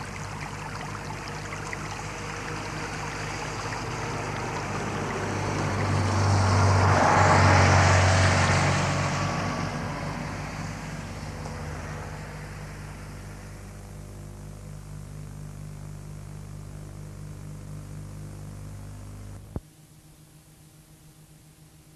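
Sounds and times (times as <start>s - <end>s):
faint tape hiss: 0.0s - 6.1s, 10.8s - 21.9s
low hum with hiss: 0.0s - 21.9s.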